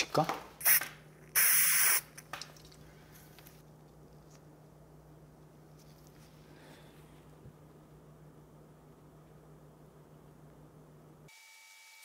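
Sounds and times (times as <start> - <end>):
steady low hum: 2.1 - 11.3.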